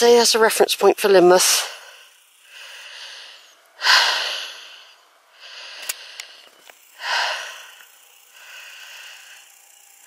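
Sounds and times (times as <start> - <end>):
person breathing hard: 1.7 - 9.6
faint clicks: 5.7 - 6.8.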